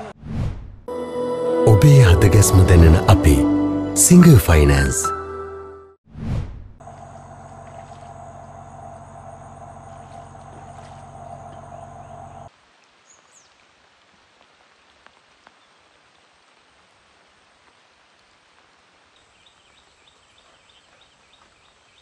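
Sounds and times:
low hum: 5.1s - 12.5s.

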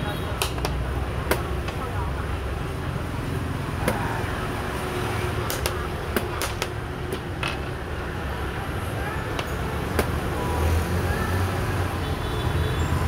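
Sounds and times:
game pieces clacking on wooden board: 5.5s - 7.7s.

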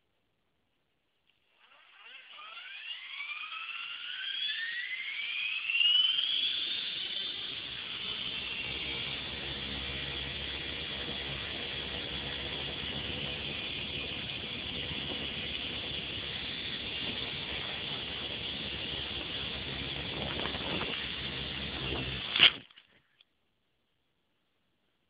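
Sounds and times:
rc helicopter rotors whirring: 1.3s - 22.8s
high gear whine: 1.4s - 22.8s.

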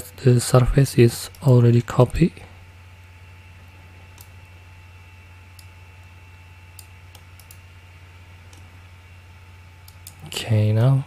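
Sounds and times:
steady low hum: 0.0s - 11.0s
computer mouse clicks: 4.1s - 4.4s, 5.5s - 7.6s, 9.8s - 10.3s.

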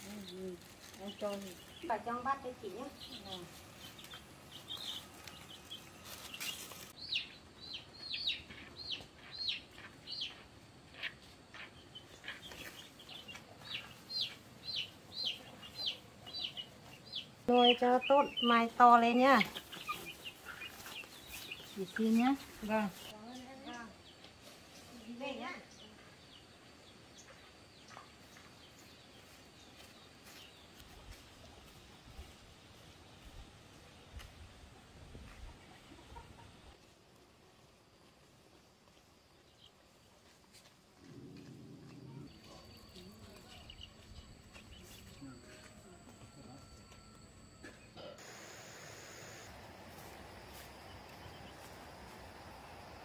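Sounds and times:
small birds chirping: 0.0s - 32.4s, 38.6s - 40.1s, 41.0s - 53.0s
chicks peeping: 0.1s - 10.4s, 11.0s - 23.1s, 42.3s - 46.3s.

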